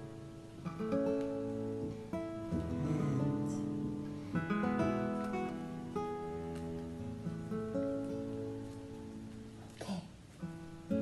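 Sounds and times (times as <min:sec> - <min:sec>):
acoustic guitar music: 0:00.0 - 0:11.0.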